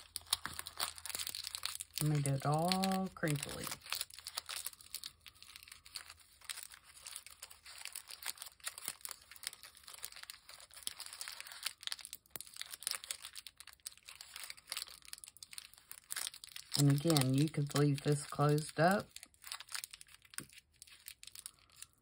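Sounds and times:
paper crinkling by hand: 0.0 - 22.0.

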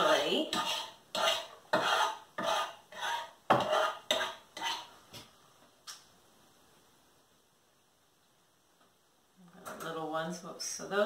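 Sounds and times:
metal fork scraping a steel pot: 0.0 - 4.9.

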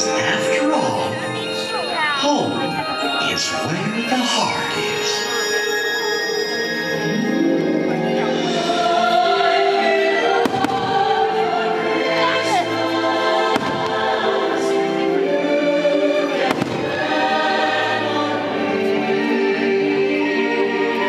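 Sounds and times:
choir singing over music: 2.3 - 21.0
fireworks bangs: 10.4 - 11.1, 13.5 - 14.4, 16.4 - 17.1.

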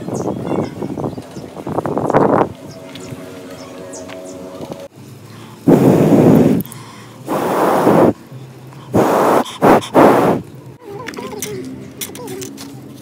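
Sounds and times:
person blowing into charcoal: 5.6 - 6.7, 7.3 - 8.2, 8.9 - 10.5.

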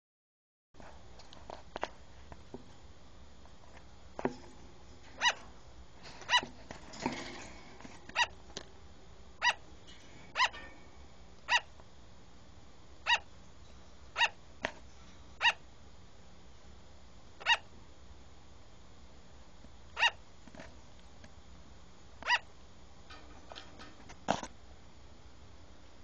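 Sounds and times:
sugar glider barking: 5.0 - 5.6, 6.2 - 6.6, 8.0 - 8.5, 9.4 - 10.8, 11.4 - 11.8, 13.0 - 13.3, 14.1 - 14.4, 15.4 - 15.7, 17.4 - 17.7, 19.9 - 20.2, 22.2 - 22.6.

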